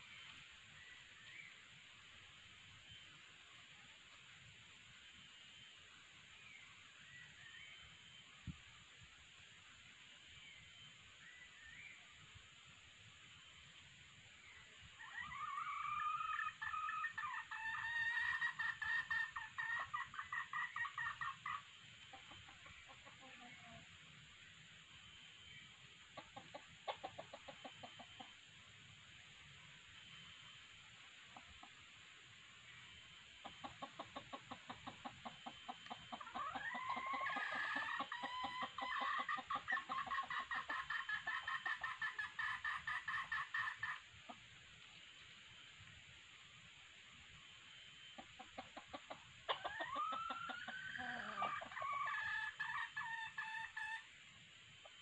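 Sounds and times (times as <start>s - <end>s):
junglefowl long rising call: 15.0s - 21.7s, 36.0s - 44.0s, 48.6s - 54.1s
junglefowl clucking: 15.0s - 23.9s, 26.1s - 28.4s, 33.4s - 44.5s, 48.1s - 54.2s.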